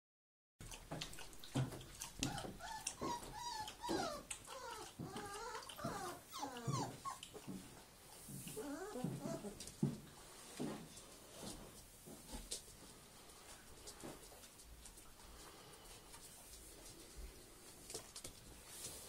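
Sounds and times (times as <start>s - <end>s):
puppies whining and yelping: 1.9s - 7.5s, 8.5s - 9.7s.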